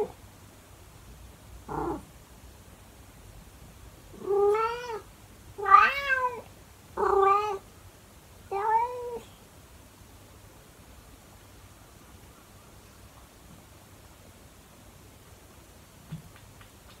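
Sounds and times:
cat meowing loudly: 0:04.2 - 0:05.0, 0:05.6 - 0:06.4, 0:07.0 - 0:07.6, 0:08.5 - 0:09.2.

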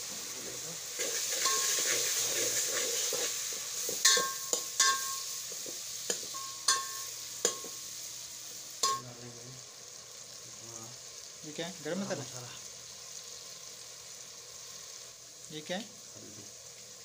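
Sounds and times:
onion masala frying: 0:00.0 - 0:17.0
ladle clinking against pot: 0:04.0 - 0:05.2, 0:06.1 - 0:07.7, 0:08.8 - 0:09.0.

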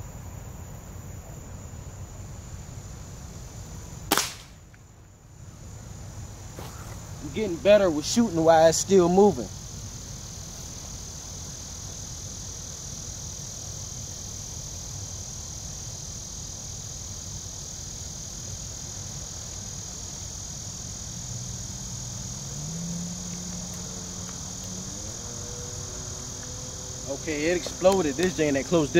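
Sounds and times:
insects calling: 0:00.0 - 0:28.9
low engine-like hum: 0:21.1 - 0:28.9.

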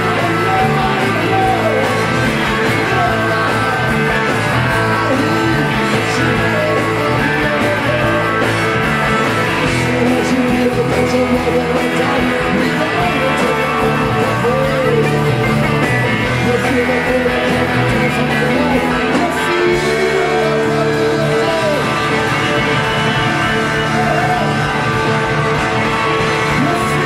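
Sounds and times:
rock band playing live: 0:00.0 - 0:27.0
sliding lead guitar: 0:00.0 - 0:27.0.

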